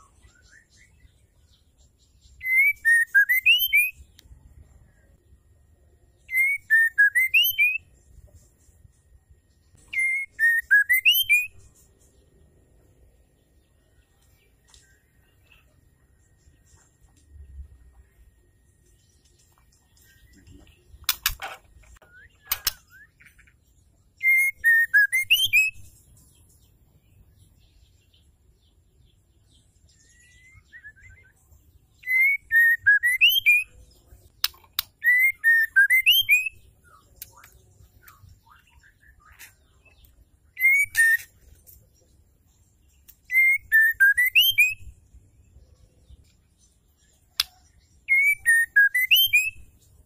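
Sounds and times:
bird singing whistles: 0:02.2 - 0:04.2, 0:06.2 - 0:08.0, 0:09.7 - 0:11.7, 0:24.2 - 0:25.9, 0:29.9 - 0:31.4, 0:32.0 - 0:33.8, 0:34.8 - 0:41.3, 0:43.2 - 0:45.0, 0:47.3 - 0:49.8
sharp clicks: 0:21.0 - 0:22.8.

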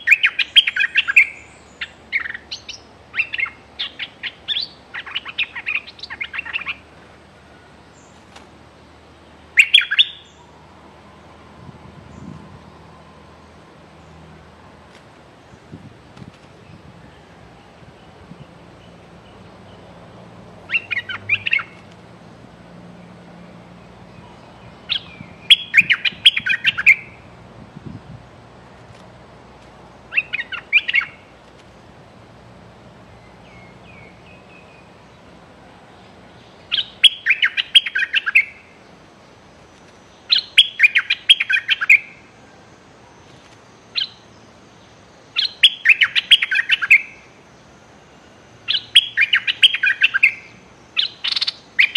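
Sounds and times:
bird chattering calls: 0:00.0 - 0:06.8, 0:09.5 - 0:10.4, 0:20.7 - 0:21.9, 0:24.2 - 0:27.3, 0:30.1 - 0:31.3, 0:36.7 - 0:38.8, 0:40.2 - 0:42.1, 0:45.4 - 0:47.3, 0:48.7 - 0:51.9.

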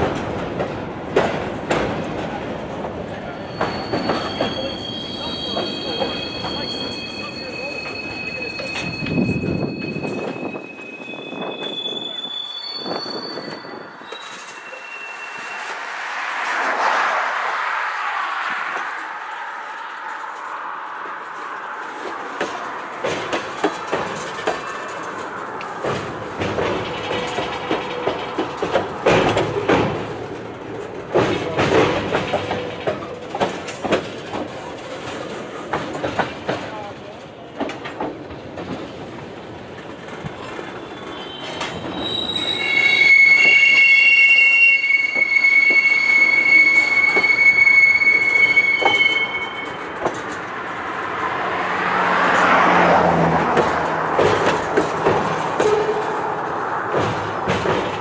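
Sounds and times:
train wheels clanking over rail joints: 0:00.0 - 0:12.2, 0:19.8 - 0:44.1, 0:44.9 - 0:51.1, 0:52.1 - 0:58.0
train rumble: 0:00.0 - 0:58.0
train wheels squealing on rail: 0:03.1 - 0:17.6, 0:40.0 - 0:50.5
clacks: 0:19.8 - 0:36.9, 0:48.8 - 0:50.5, 0:52.2 - 0:56.2, 0:56.8 - 0:58.0.

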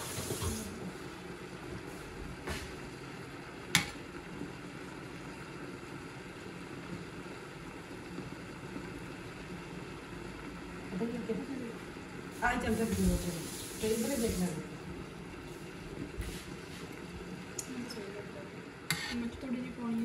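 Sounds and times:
gravy simmering in a wok: 0:00.8 - 0:12.3.

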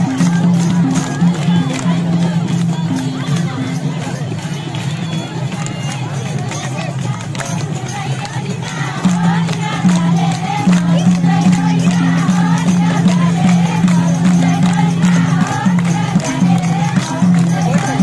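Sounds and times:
crowd noise: 0:00.0 - 0:18.0
drum beat: 0:00.0 - 0:18.0
hand clapping: 0:00.0 - 0:18.0
women singing folk song: 0:00.0 - 0:18.0.

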